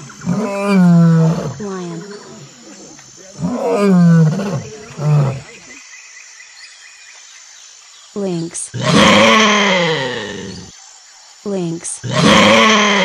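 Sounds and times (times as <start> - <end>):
lion grunt: 0.0 - 5.8
lion roaring: 0.0 - 5.8, 8.7 - 10.7, 12.0 - 13.0.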